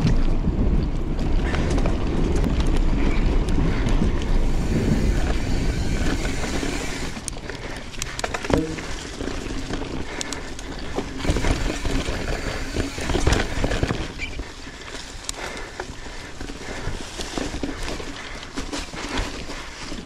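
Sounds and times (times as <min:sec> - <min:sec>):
wind rushing over microphone: 0:00.0 - 0:14.4
mountain bike rattling on dirt: 0:00.0 - 0:20.0.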